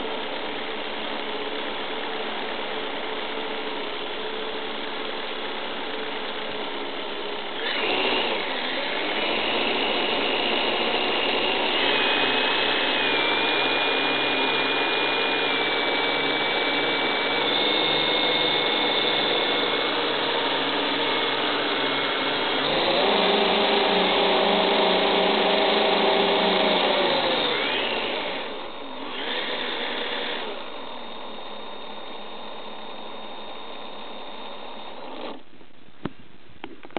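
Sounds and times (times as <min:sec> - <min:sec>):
model plane electric motors whining: 0:01.2 - 0:35.4.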